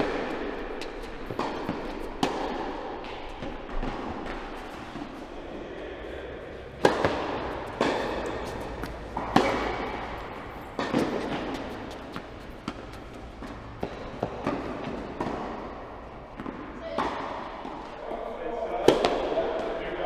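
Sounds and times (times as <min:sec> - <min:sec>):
tennis ball bouncing: 0:00.0 - 0:05.2, 0:06.6 - 0:17.9, 0:18.8 - 0:19.3
racket striking tennis ball: 0:00.0 - 0:05.3, 0:06.6 - 0:17.9, 0:18.8 - 0:19.7.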